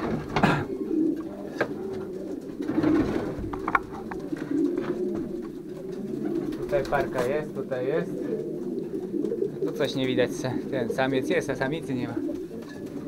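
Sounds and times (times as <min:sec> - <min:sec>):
pigeons cooing: 0:00.0 - 0:13.0
sharp knocks and clicks: 0:01.6 - 0:05.6.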